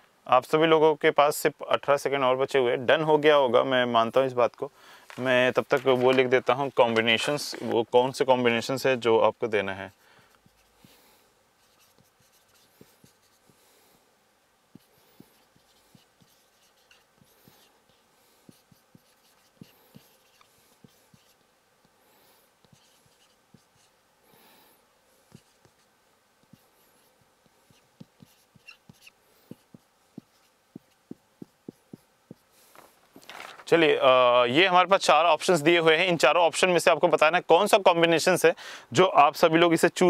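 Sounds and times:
marker writing on whiteboard: 0:09.3 - 0:13.9, 0:14.7 - 0:22.0, 0:22.6 - 0:24.0, 0:25.2 - 0:33.0.

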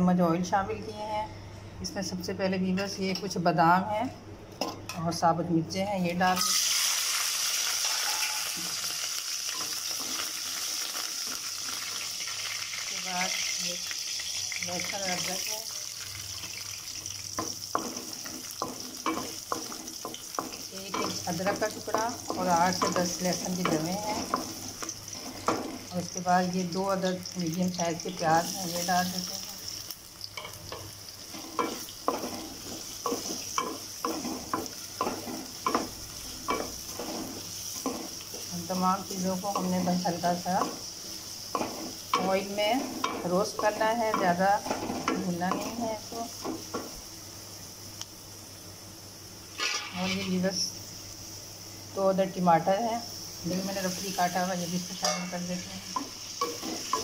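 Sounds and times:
nuts and chillies sizzling in oil: 0:06.0 - 0:57.0
spatula stirring: 0:17.3 - 0:26.0, 0:30.4 - 0:40.8, 0:41.5 - 0:46.9
spatula scraping metal pan: 0:49.6 - 0:50.4.

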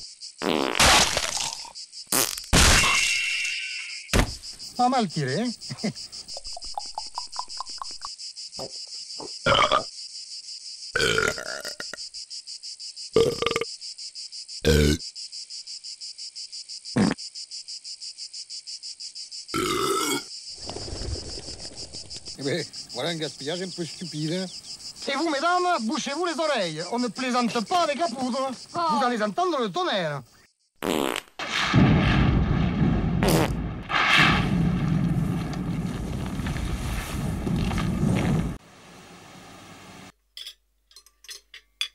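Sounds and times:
insects chirring: 0:00.0 - 0:41.9
man burping loudly: 0:09.5 - 0:09.9, 0:11.0 - 0:11.9, 0:13.2 - 0:13.7, 0:14.6 - 0:15.0, 0:19.6 - 0:20.3.

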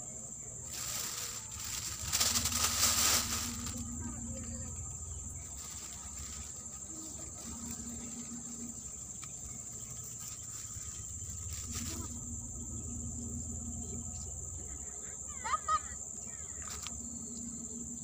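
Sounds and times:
insects chirring: 0:00.0 - 0:18.0.

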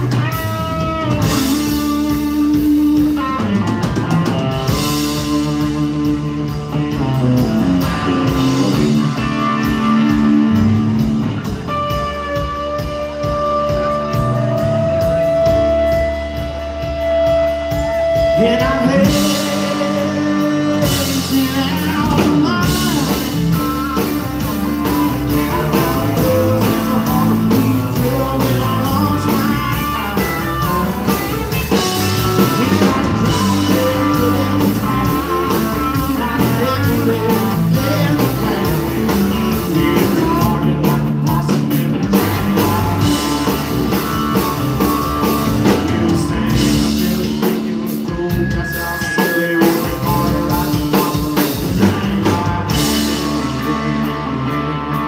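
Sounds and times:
live band playing: 0:00.0 - 0:55.0
person singing: 0:11.8 - 0:55.0.

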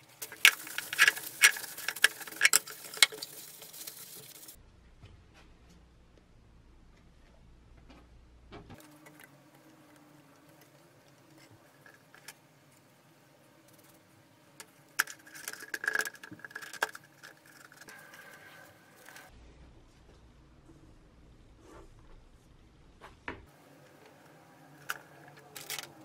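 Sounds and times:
brush scraping on metal: 0:00.1 - 0:04.6, 0:15.0 - 0:19.3.

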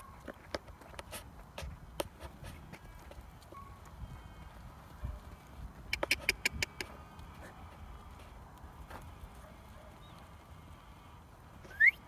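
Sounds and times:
sharp clicks: 0:05.9 - 0:07.2.

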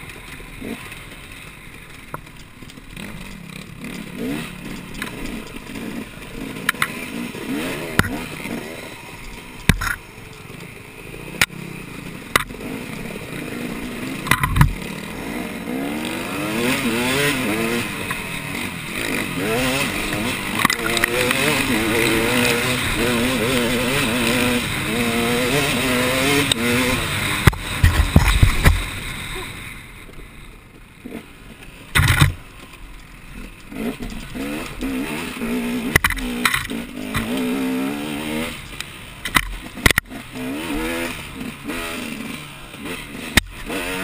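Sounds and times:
racing engine revving: 0:12.3 - 0:28.9
sharp knocks and thuds: 0:14.2 - 0:14.8, 0:27.4 - 0:28.9, 0:31.9 - 0:32.5.

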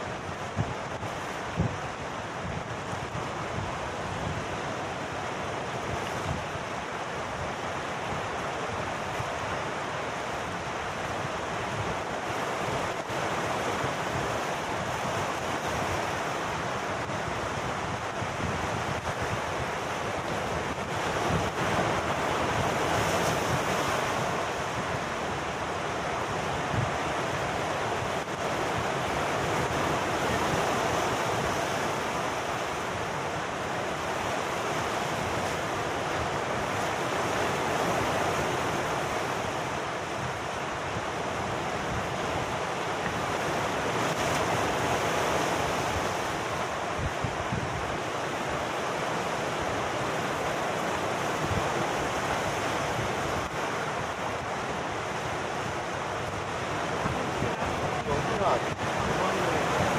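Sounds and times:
surf breaking on rocks: 0:26.0 - 0:59.9.

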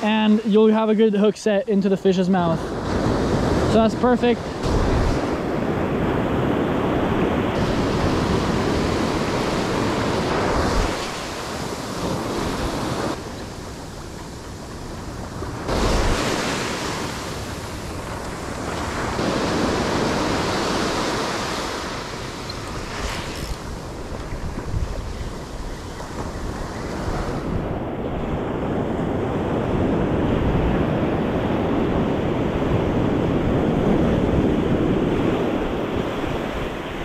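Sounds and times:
ocean surf breaking on beach: 0:00.0 - 0:37.0.

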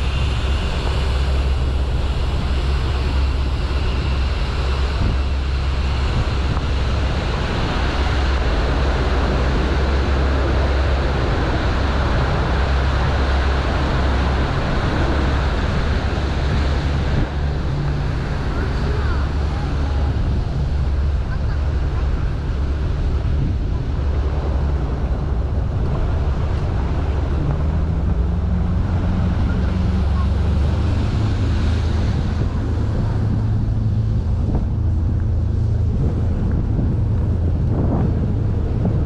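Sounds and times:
boat engine droning: 0:00.0 - 0:39.0
water rushing past hull: 0:00.0 - 0:39.0
wind noise on microphone: 0:00.0 - 0:39.0.

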